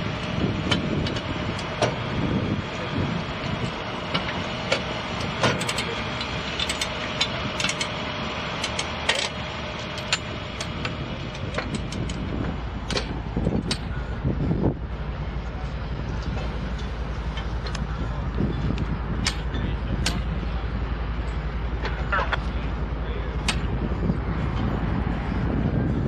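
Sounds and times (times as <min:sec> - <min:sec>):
low rumble: 0:00.0 - 0:26.0
metal tools clanking on rail: 0:03.5 - 0:08.0, 0:08.6 - 0:14.1, 0:16.2 - 0:20.6.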